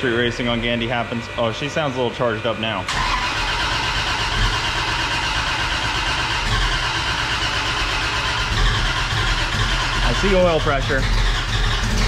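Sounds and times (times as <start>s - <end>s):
engine turning over: 2.9s - 12.0s.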